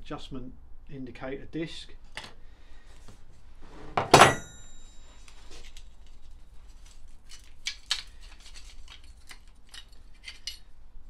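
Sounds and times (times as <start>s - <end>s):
metal disc clanking on workbench: 4.0s - 4.8s
metal parts clinking and scraping: 7.3s - 10.7s.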